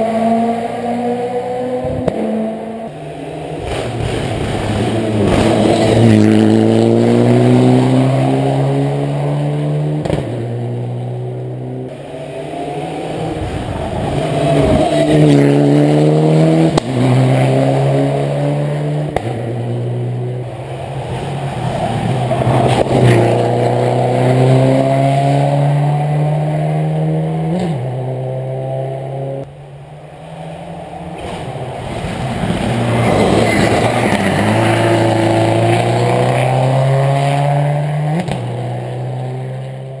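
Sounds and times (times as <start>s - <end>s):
rally car engine revving: 0.0s - 40.0s.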